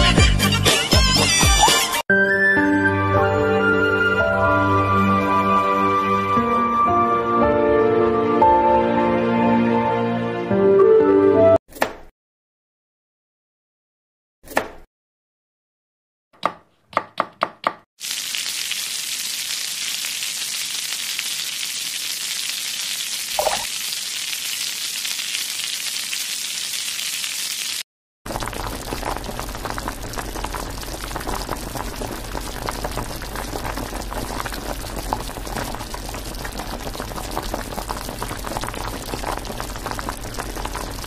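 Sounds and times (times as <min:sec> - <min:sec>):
covered pan bubbling and crackling: 0:18.0 - 0:41.0
egg sizzling in frying pan: 0:18.0 - 0:41.0.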